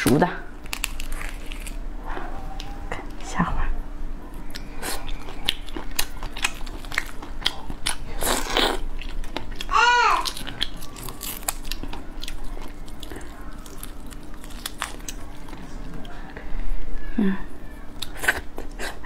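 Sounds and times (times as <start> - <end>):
chewing prawn: 0.6 - 1.8, 4.3 - 16.1.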